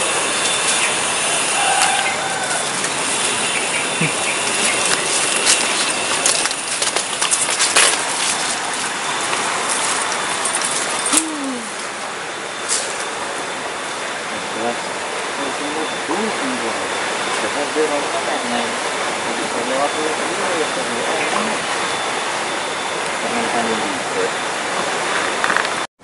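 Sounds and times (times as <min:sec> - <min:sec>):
steady hiss: 0:00.0 - 0:25.8
footsteps on leaf-littered dirt: 0:01.6 - 0:11.1.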